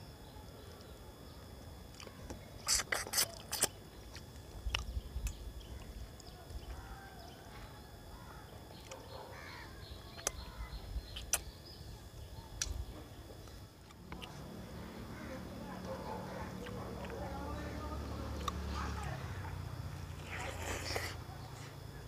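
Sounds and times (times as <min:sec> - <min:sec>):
lip-smacking while eating: 0:01.9 - 0:06.3, 0:10.1 - 0:10.5, 0:11.1 - 0:11.6, 0:13.8 - 0:14.4, 0:15.8 - 0:17.4, 0:19.4 - 0:21.5
faint birds calling: 0:03.3 - 0:19.6.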